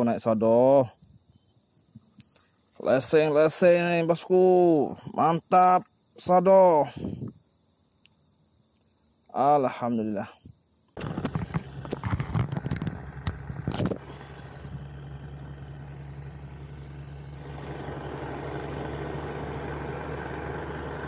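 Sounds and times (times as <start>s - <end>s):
sharp knocks and rattles: 11.0s - 14.0s
boat engine humming: 11.0s - 21.0s.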